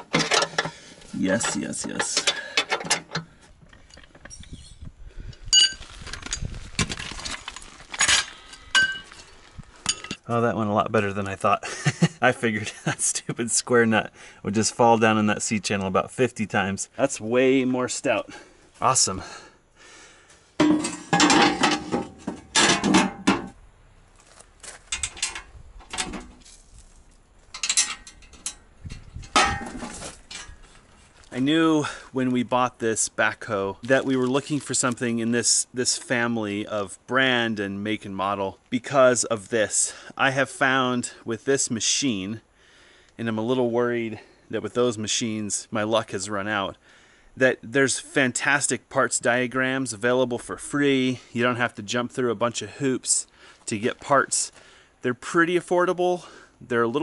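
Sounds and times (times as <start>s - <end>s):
metallic clicks and knocks: 0.0s - 0.8s, 1.4s - 4.5s, 24.9s - 26.4s, 27.5s - 30.6s
metal tools clattering on steel: 0.0s - 3.2s, 5.5s - 6.5s, 7.9s - 9.2s, 20.6s - 23.5s, 27.6s - 30.6s
ringing metal clink: 5.5s - 5.8s.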